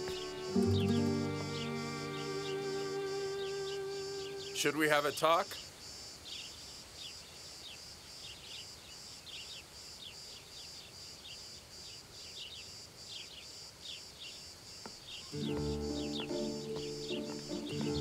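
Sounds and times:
bird chirps: 0.0s - 5.7s, 15.1s - 18.0s
insects chirping: 0.0s - 18.0s.

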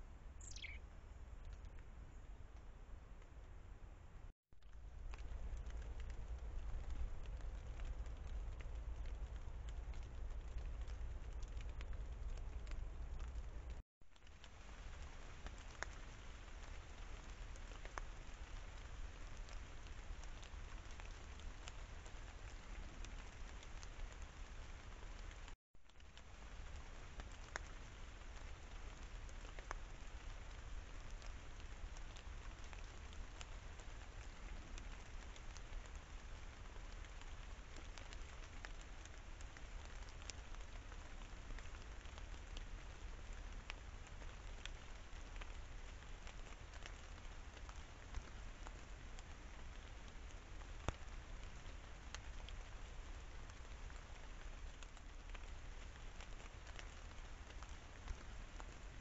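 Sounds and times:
low steady rumble: 0.0s - 13.8s
rain pattering on leaves: 0.4s - 3.8s, 4.6s - 59.0s.

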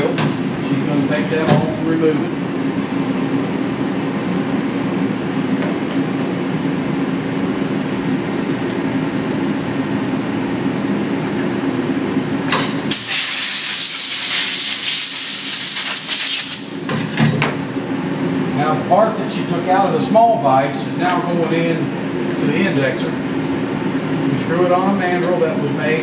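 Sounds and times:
low machine hum: 0.0s - 13.1s, 16.6s - 26.0s
loud spraying hiss: 12.9s - 16.7s.

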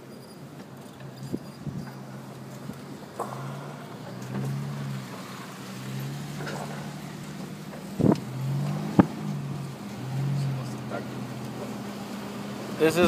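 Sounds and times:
car cabin hum: 6.4s - 9.8s.

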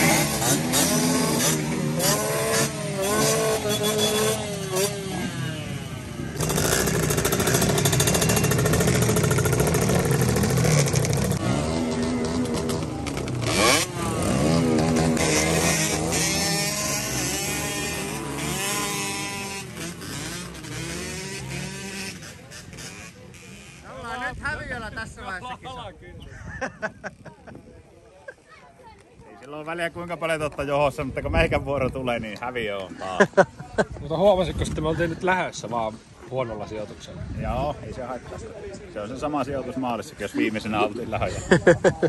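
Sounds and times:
dirt bike engines revving: 0.0s - 25.4s.

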